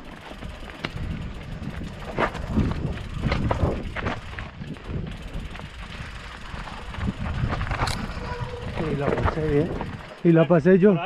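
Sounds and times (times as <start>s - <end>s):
bike knocking and clattering on rocks: 0.2s - 10.2s.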